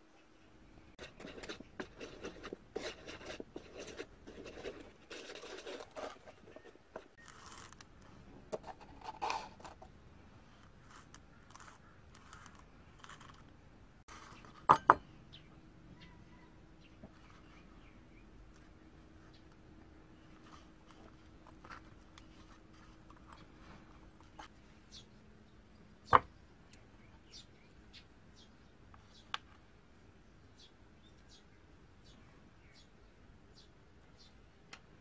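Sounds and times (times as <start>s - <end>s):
sandpaper scraping and rustling: 1.0s - 7.9s.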